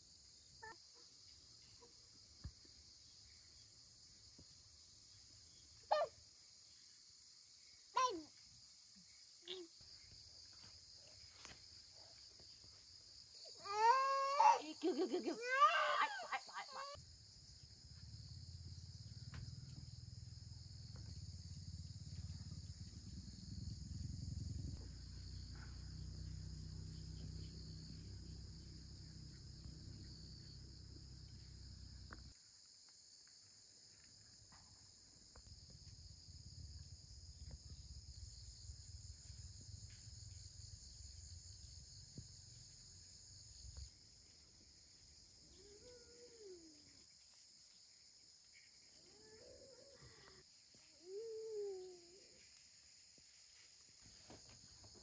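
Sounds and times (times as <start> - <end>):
insects chirping: 0.0 - 55.0
low rumble: 21.2 - 25.4.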